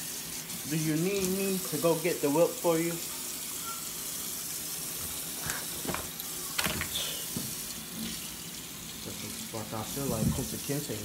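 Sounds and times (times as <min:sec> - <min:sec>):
tap running into sink: 0:05.0 - 0:08.2, 0:09.9 - 0:10.6.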